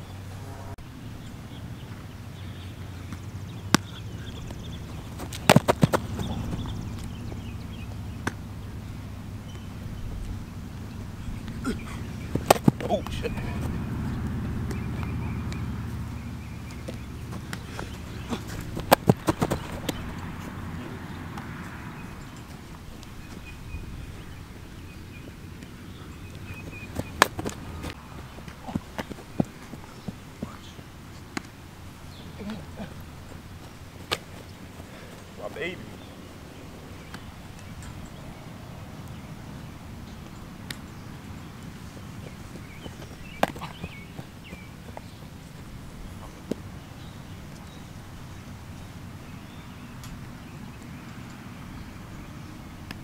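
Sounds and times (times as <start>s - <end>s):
low background rumble: 0.0s - 49.9s
football slap: 3.1s - 7.1s, 8.2s - 8.4s, 12.3s - 13.8s, 16.7s - 20.1s, 26.7s - 28.0s
cleated footsteps: 3.1s - 7.4s, 16.6s - 20.6s, 25.6s - 31.6s, 40.2s - 46.7s.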